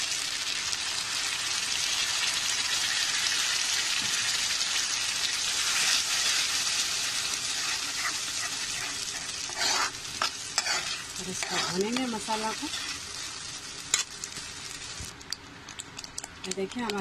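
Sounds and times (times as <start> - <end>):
paste sizzling in butter: 0.5 - 15.1
spoon stirring: 7.5 - 13.0.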